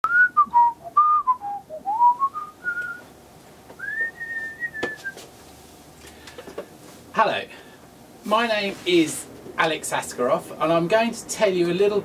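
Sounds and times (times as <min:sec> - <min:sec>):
man whistling a tune: 0:00.0 - 0:03.0, 0:03.8 - 0:05.2.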